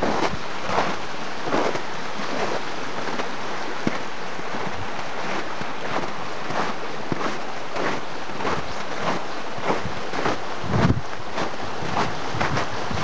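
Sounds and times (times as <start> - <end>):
brook running over stones: 0.0 - 13.0
water gurgles and splashes: 0.0 - 13.0.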